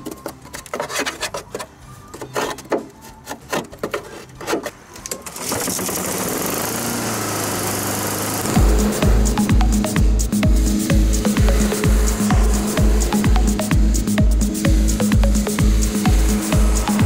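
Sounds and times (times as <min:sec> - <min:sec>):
steady even sound: 0:08.4 - 0:17.0.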